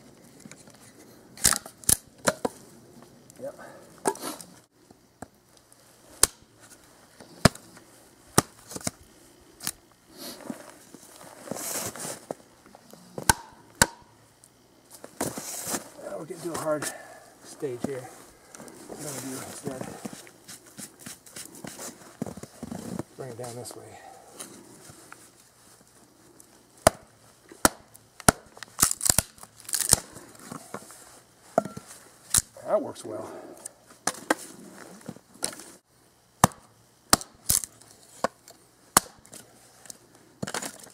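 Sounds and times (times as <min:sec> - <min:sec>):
hatchet chopping wood: 0:13.2 - 0:14.1, 0:26.8 - 0:28.5, 0:36.4 - 0:39.4
wood cracking and splitting: 0:27.6 - 0:30.1.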